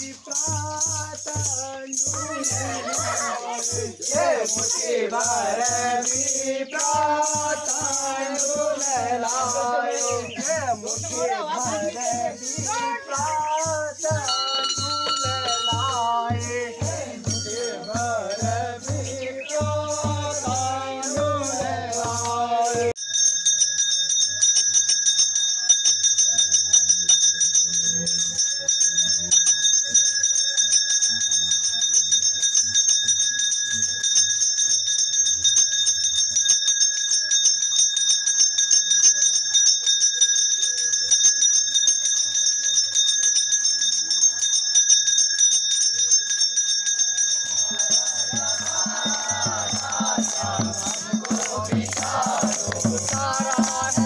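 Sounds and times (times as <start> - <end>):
drum beat: 0.0 - 22.9, 47.4 - 54.0
group singing: 0.0 - 23.0, 47.5 - 54.0
temple bell ringing rapidly: 0.0 - 54.0.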